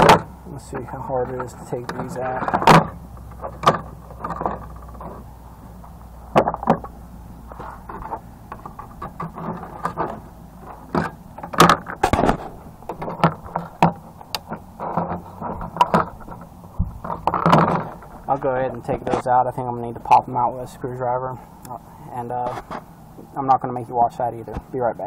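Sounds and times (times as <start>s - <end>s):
plastic case clicks and scrapes: 7.5s - 18.2s.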